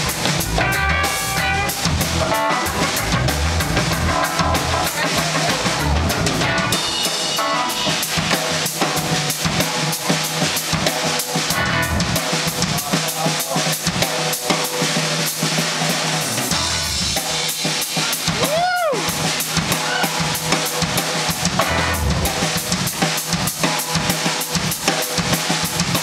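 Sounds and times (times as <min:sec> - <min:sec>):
bass line: 0:00.0 - 0:09.2, 0:11.5 - 0:12.2, 0:16.4 - 0:17.2, 0:21.4 - 0:22.8
drum kit: 0:00.0 - 0:26.0
funk band playing: 0:00.0 - 0:26.0.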